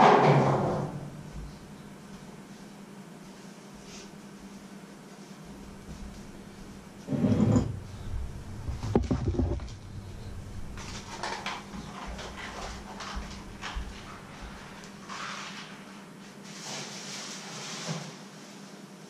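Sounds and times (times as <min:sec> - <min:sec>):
steady low hum: 0:00.0 - 0:15.6
heavy low knock: 0:07.6 - 0:14.8.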